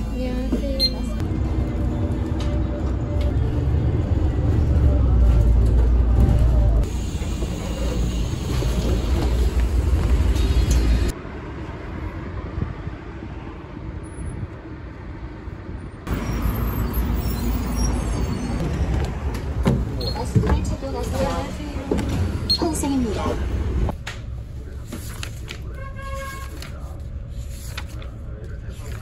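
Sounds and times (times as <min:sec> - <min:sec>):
bus drawing up: 0:00.0 - 0:11.1, 0:16.1 - 0:23.9
bus engine rumble and road noise: 0:00.0 - 0:29.0
street traffic: 0:00.0 - 0:29.0.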